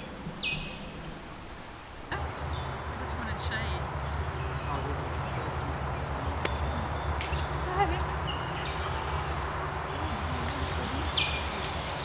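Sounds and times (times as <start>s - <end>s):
bird chirps: 0.0s - 1.1s, 9.9s - 12.0s.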